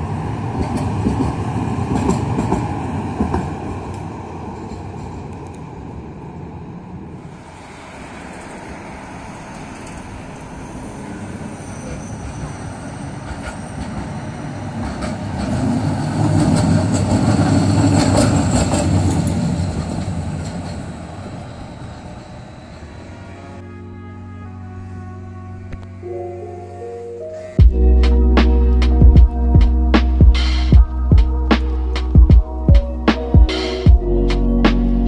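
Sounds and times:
tram clicks: 0.0s - 6.3s, 7.6s - 22.9s
tram passing: 0.0s - 35.0s.

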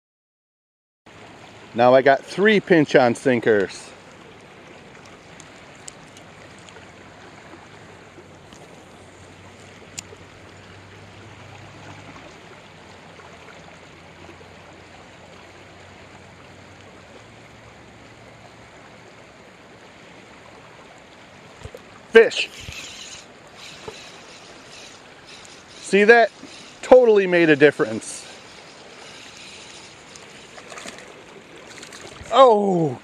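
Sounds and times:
fast-flowing river rushing: 20.6s - 33.0s.

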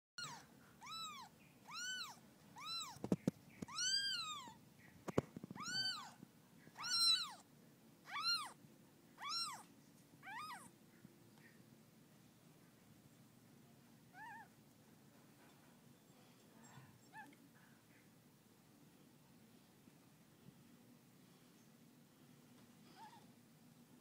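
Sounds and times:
kitten mewing: 0.2s - 4.6s, 5.5s - 6.2s, 6.8s - 7.4s, 8.1s - 8.6s, 9.2s - 10.7s.

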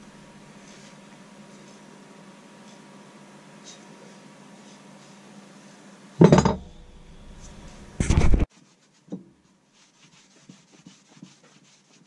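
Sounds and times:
metal parts clanking on bench: 6.2s - 6.7s
cloth rubbing on metal: 7.3s - 12.0s.

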